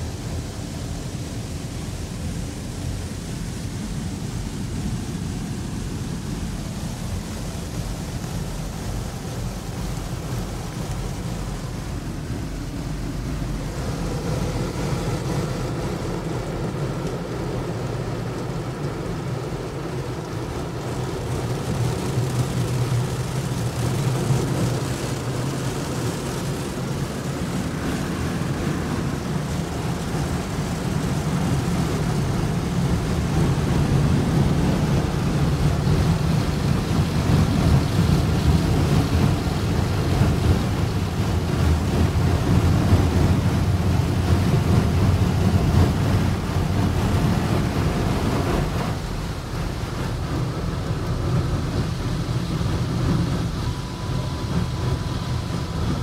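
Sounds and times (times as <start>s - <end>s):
air dryers blowing: 0.0s - 56.0s
water and rotating brushes: 1.4s - 56.0s
low hum: 47.2s - 56.0s.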